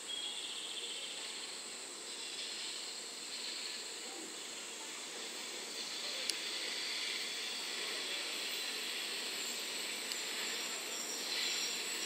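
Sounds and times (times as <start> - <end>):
train hissing: 0.8 - 12.0.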